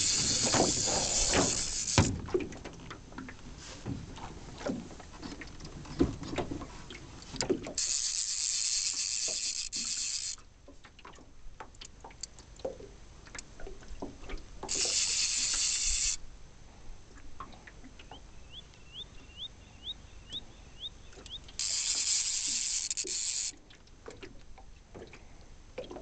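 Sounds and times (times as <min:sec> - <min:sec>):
fishing reel drag buzzing: 0:00.0 - 0:02.2, 0:07.7 - 0:10.4, 0:14.6 - 0:16.2, 0:21.4 - 0:23.6.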